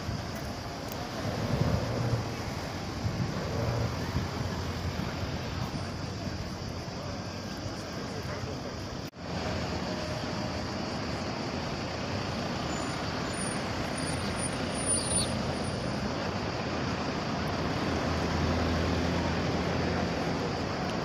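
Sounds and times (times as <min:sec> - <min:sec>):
boat motor rumbling: 0:00.5 - 0:06.9.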